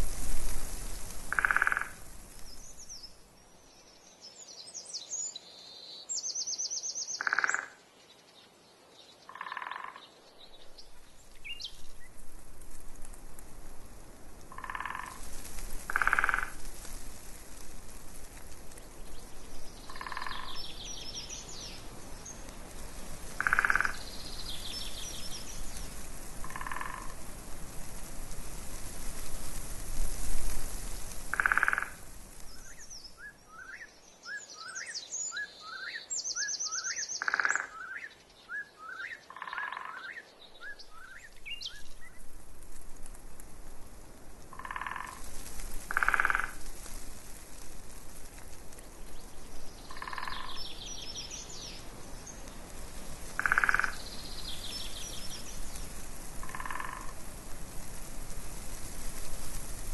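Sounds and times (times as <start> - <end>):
small birds trilling and chirping: 0.7 - 12.4, 14.5 - 29.2, 30.0 - 42.4, 44.5 - 57.2
frog croaking: 1.3 - 2.0, 7.2 - 7.8, 9.3 - 10.0, 14.5 - 15.2, 15.9 - 16.6, 19.9 - 20.6, 23.4 - 24.1, 26.4 - 27.2, 31.3 - 32.0, 37.2 - 37.8, 39.3 - 40.1, 44.5 - 45.2, 45.9 - 46.6, 49.9 - 50.6, 53.4 - 54.0, 56.4 - 57.2.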